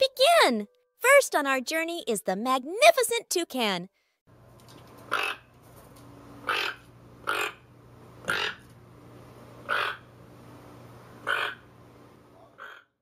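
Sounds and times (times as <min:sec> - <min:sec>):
toucan calling: 0:06.5 - 0:07.6, 0:09.7 - 0:10.1, 0:11.3 - 0:11.6.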